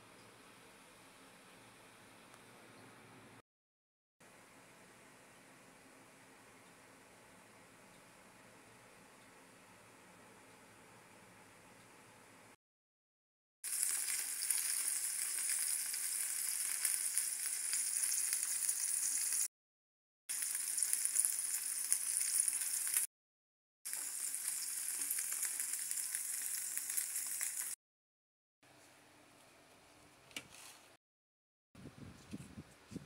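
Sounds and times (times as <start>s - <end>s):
fish sizzling in hot oil: 13.6s - 19.5s, 20.3s - 23.1s, 23.9s - 27.8s.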